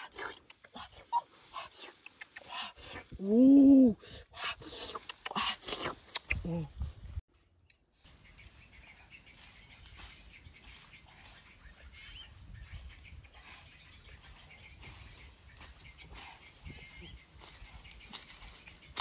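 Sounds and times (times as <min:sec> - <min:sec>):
faint bird chirps: 0:07.4 - 0:19.0
footsteps on dry leaves: 0:08.0 - 0:19.0.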